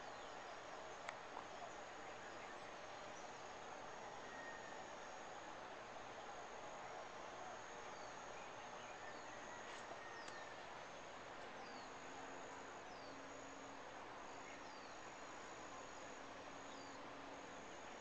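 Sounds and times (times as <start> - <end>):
insects trilling: 0.0 - 18.0
soft hiss: 0.0 - 18.0.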